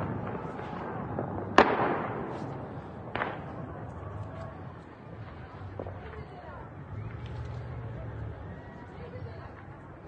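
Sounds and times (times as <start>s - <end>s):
distant gunshots echoing: 0.0s - 3.8s.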